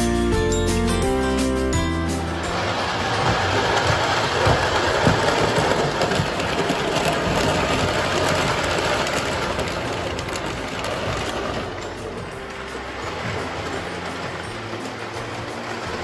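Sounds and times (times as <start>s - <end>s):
model train whirring and clattering: 0.2s - 16.0s.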